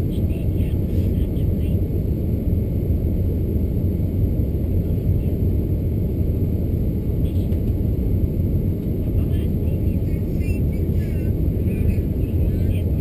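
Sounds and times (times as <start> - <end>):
jet engines low rumble: 0.0 - 13.0.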